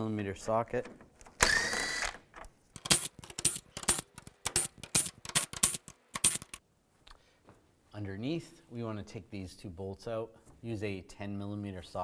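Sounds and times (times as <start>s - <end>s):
cordless driver whirring: 1.4s - 2.2s.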